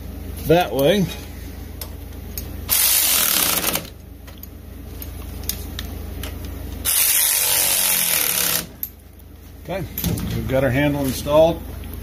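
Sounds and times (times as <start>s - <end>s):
electric ratchet running: 2.7s - 4.0s, 6.8s - 8.9s.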